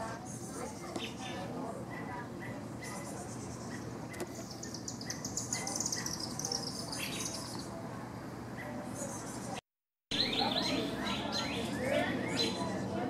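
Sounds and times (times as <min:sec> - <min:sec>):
songbird trilling: 0:02.9 - 0:07.7, 0:10.1 - 0:12.7.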